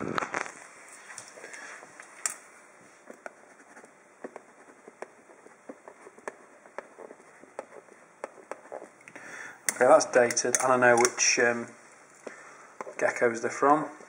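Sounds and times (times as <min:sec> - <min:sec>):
pen scratching on plastic: 0:03.2 - 0:09.0.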